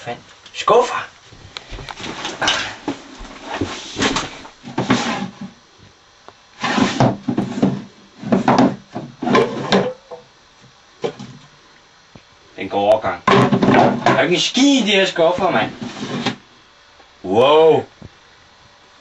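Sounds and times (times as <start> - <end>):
wooden drawers sliding open and shut: 6.6 - 9.9, 15.8 - 16.4.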